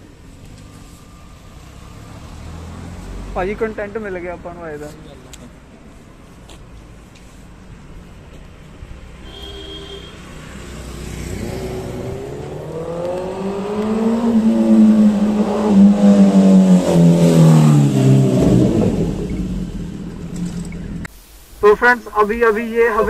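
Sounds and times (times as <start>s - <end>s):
vehicle engine passing by: 0.5s - 4.8s, 10.2s - 21.1s.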